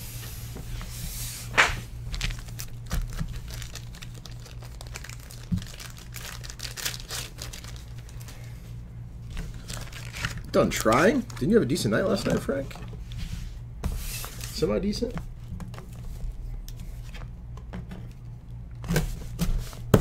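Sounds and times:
steady low hum: 0.0 - 20.0
packaging crinkling and rustling: 2.1 - 8.6, 9.2 - 13.1.

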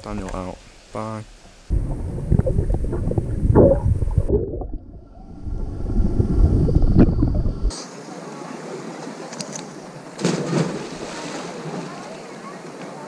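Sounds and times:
muffled underwater rumble: 1.7 - 7.7
wind on microphone: 1.7 - 7.7.

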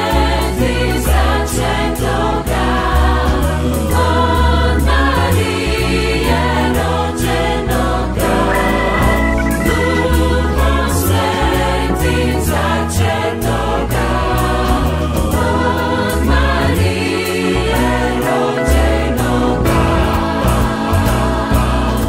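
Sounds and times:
choir singing a carol: 0.0 - 22.0
steady beat: 8.2 - 12.6
low bass line: 8.2 - 12.8.

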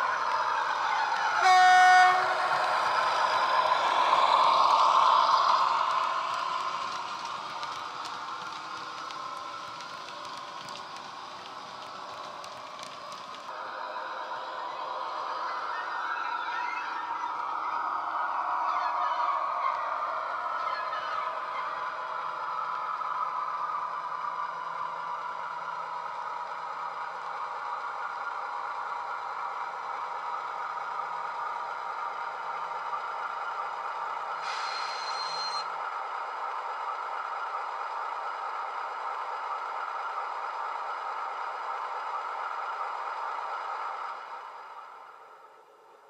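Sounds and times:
model train diesel engine sound: 0.0 - 46.0.

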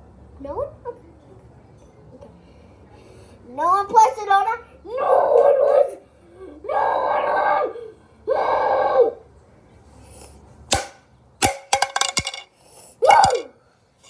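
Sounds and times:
child vocal sounds: 4.9 - 9.2.

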